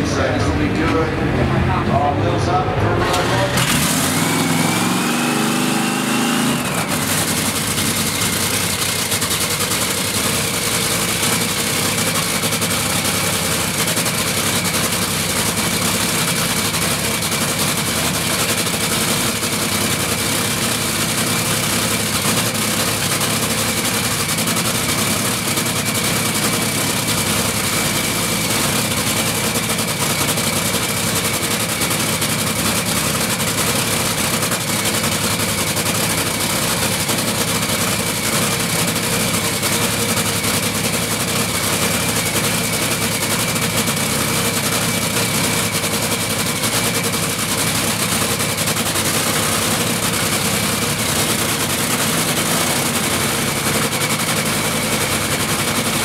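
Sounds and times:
dragster engine idling: 0:00.0 - 0:56.0
high supercharger whine: 0:00.0 - 0:56.0.

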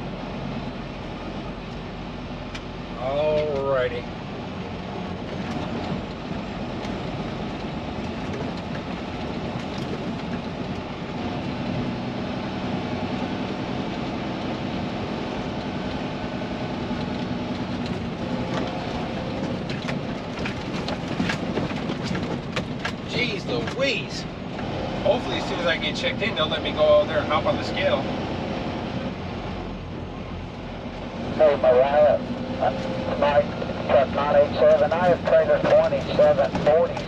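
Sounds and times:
diesel engine humming: 0:00.0 - 0:37.0
road noise: 0:00.0 - 0:37.0
rattles over rough gravel: 0:05.2 - 0:11.2, 0:17.0 - 0:26.6, 0:33.2 - 0:37.0.

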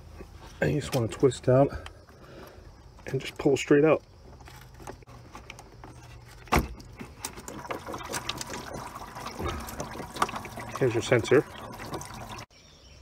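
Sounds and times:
fluid dripping into bucket: 0:06.9 - 0:12.5.

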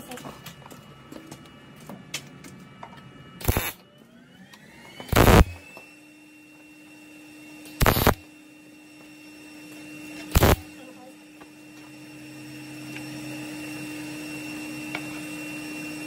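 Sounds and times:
steady low hum: 0:03.4 - 0:03.8, 0:05.1 - 0:05.6, 0:07.8 - 0:08.3, 0:10.3 - 0:11.0
welding arc sizzling: 0:03.4 - 0:03.8, 0:05.1 - 0:05.6, 0:07.8 - 0:08.2, 0:10.3 - 0:10.7.

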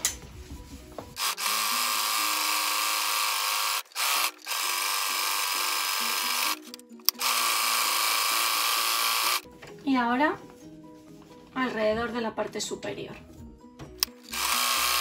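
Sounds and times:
electric sewing machine running: 0:01.2 - 0:09.4, 0:14.0 - 0:15.0.

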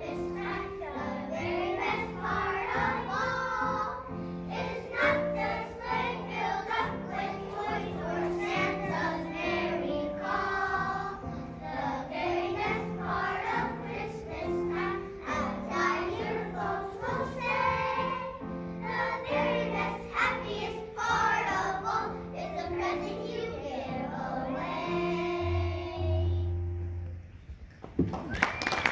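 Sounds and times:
children's choir singing: 0:00.0 - 0:26.7.

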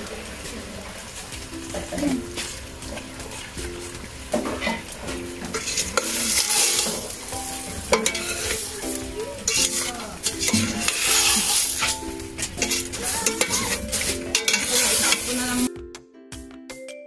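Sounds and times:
food sizzling in a pot: 0:00.0 - 0:15.7
metal ladle scraping a pot: 0:04.4 - 0:15.7.

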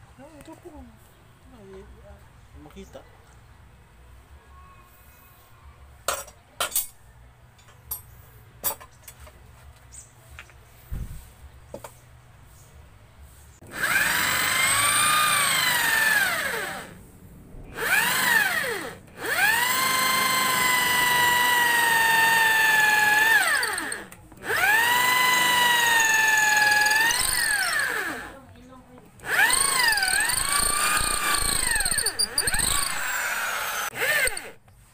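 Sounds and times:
electric drill whine: 0:13.6 - 0:17.0, 0:17.7 - 0:28.4, 0:29.2 - 0:34.6.

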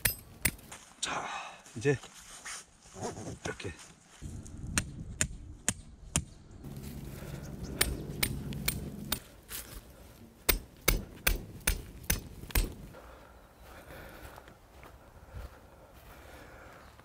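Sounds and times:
tent pegs being hammered: 0:00.0 - 0:00.7, 0:04.8 - 0:06.4, 0:07.7 - 0:09.3, 0:10.4 - 0:12.9.

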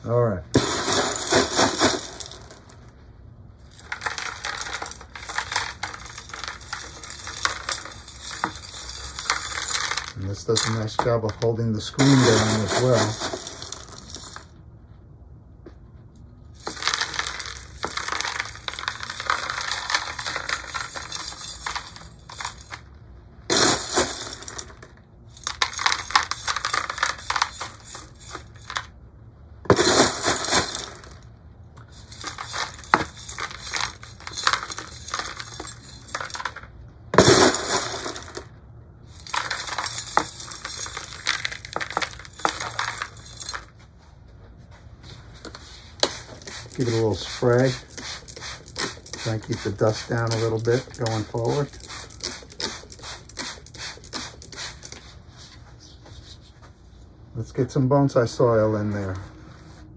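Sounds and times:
granules poured into plastic pot: 0:00.6 - 0:02.8, 0:03.7 - 0:14.4, 0:16.6 - 0:22.8, 0:23.5 - 0:28.9, 0:29.7 - 0:31.2, 0:31.9 - 0:36.6, 0:37.2 - 0:38.5, 0:39.1 - 0:43.7, 0:45.9 - 0:55.1.

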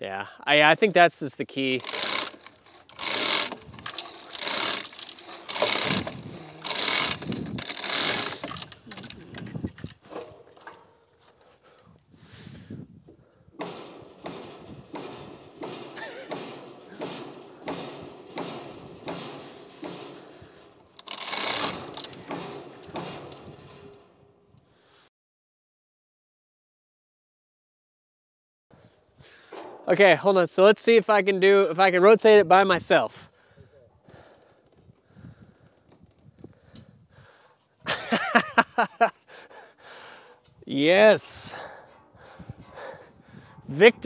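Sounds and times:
hand hoist ratcheting: 0:01.6 - 0:11.5, 0:13.6 - 0:24.4
chain rattling: 0:01.8 - 0:11.0, 0:13.3 - 0:24.3, 0:41.5 - 0:43.7.

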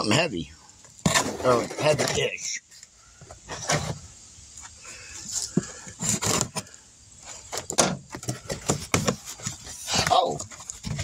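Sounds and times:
cardboard rustling: 0:05.3 - 0:11.0.

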